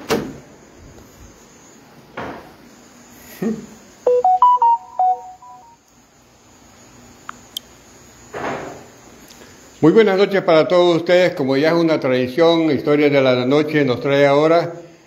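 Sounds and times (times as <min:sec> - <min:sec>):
electronic beeping jingle: 0:04.1 - 0:05.8.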